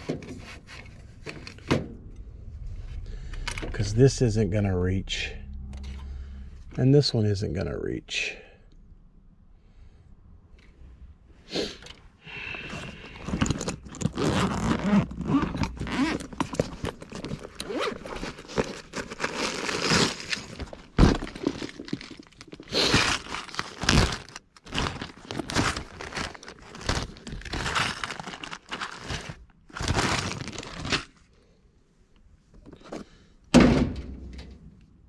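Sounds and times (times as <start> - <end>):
rummaging in tool bag: 11.8 - 31.3, 32.5 - 33.2.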